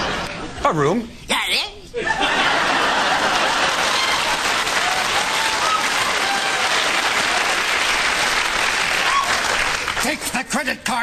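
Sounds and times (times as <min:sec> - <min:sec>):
studio audience applauding: 0:02.6 - 0:10.8.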